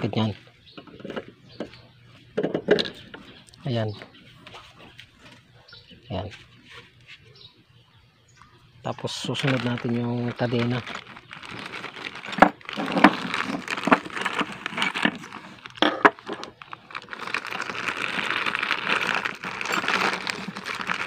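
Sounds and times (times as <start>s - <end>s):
plastic bag crinkling: 9.1s - 21.0s.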